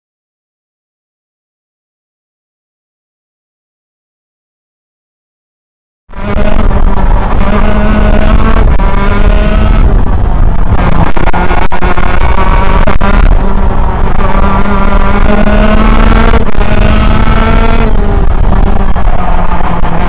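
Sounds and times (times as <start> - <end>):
kart engine revving: 6.2 - 20.0.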